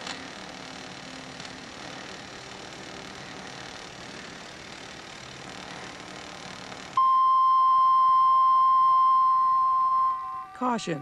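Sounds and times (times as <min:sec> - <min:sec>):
welding arc hiss: 0:00.0 - 0:07.0
electronic warning tone: 0:07.0 - 0:11.0.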